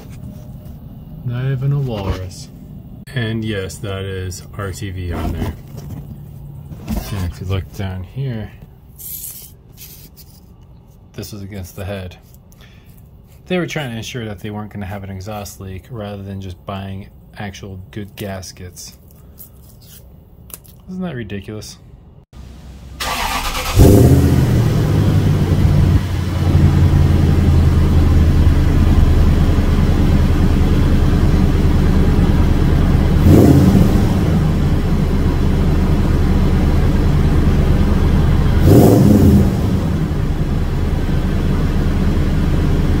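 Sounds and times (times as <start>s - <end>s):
car engine idling: 22.4s - 43.0s
engine starting: 23.0s - 24.6s
engine revving: 23.0s - 43.0s.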